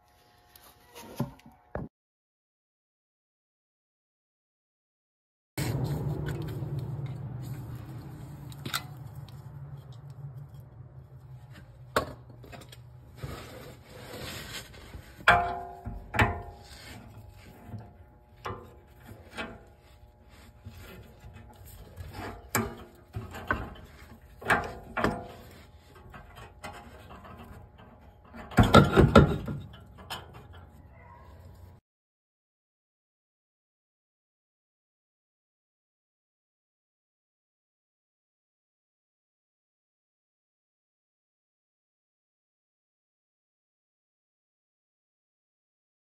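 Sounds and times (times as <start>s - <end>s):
low hum: 5.6s - 13.5s.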